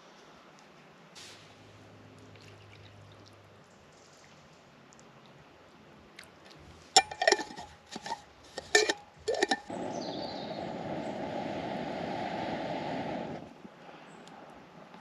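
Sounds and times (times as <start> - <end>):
metal pot lid clinking: 7.0 - 9.7
air blowing into fire: 7.4 - 14.5.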